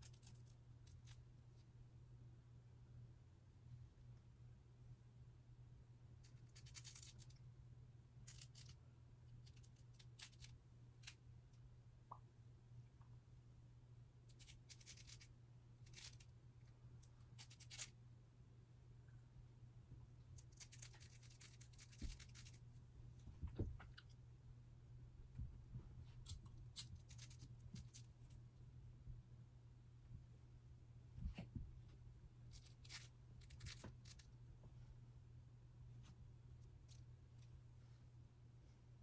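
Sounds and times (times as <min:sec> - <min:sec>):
low steady hum: 0:00.0 - 0:39.0
razor scratching lace: 0:20.4 - 0:22.6.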